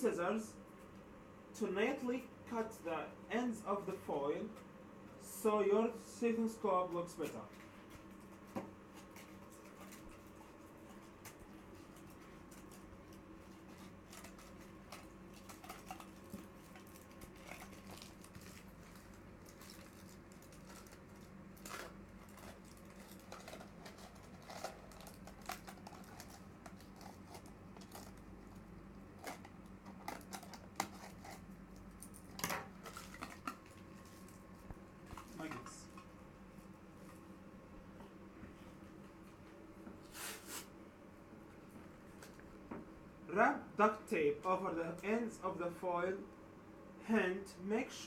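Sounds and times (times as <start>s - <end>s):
low steady hum: 0.0s - 48.0s
aluminium foil crinkling: 7.5s - 36.0s.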